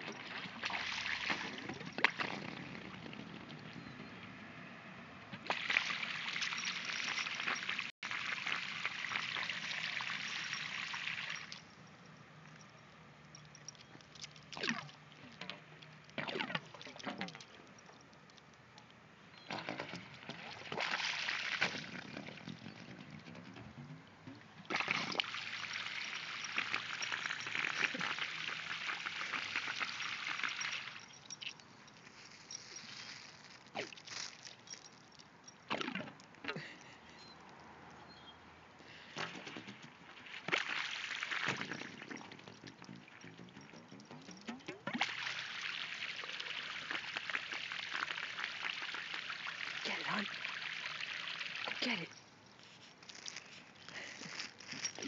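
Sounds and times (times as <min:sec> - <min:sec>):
water splashing onto pavement: 0:05.4 - 0:10.3
water trickling: 0:05.4 - 0:12.7, 0:24.7 - 0:35.7, 0:40.5 - 0:54.1.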